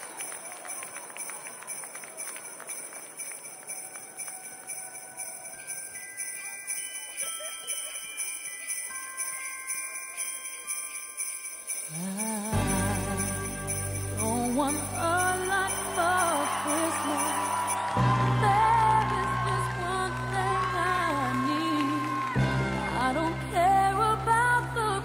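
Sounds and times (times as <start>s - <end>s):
sleigh bells jingling: 0.0s - 22.2s.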